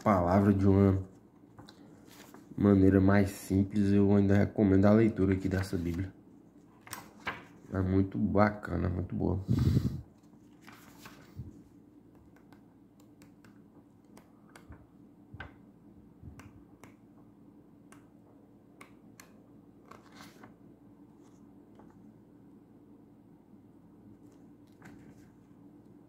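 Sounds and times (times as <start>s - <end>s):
low steady hum: 0.0s - 26.0s
paper pages rustling: 0.4s - 2.6s, 5.4s - 7.7s, 10.1s - 12.6s, 19.8s - 22.0s, 24.2s - 25.5s.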